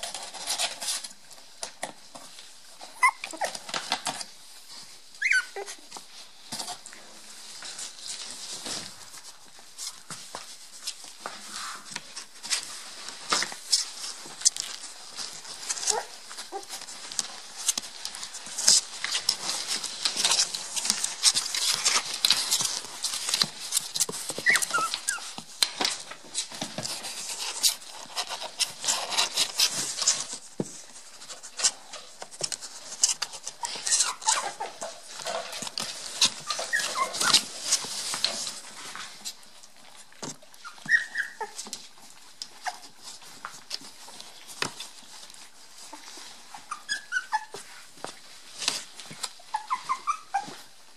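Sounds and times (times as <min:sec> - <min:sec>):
puppy whimpers and yips: 0:02.9 - 0:03.7, 0:05.2 - 0:05.9, 0:15.8 - 0:16.8, 0:24.4 - 0:25.2, 0:33.6 - 0:34.8, 0:36.4 - 0:37.5, 0:40.6 - 0:41.7, 0:46.5 - 0:47.6, 0:49.4 - 0:50.7.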